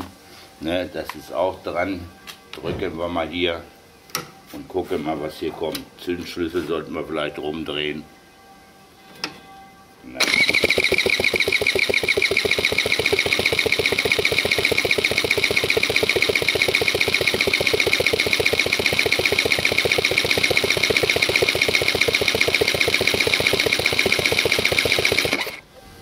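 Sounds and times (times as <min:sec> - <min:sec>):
starter cranking scooter engine: 0:10.2 - 0:25.6.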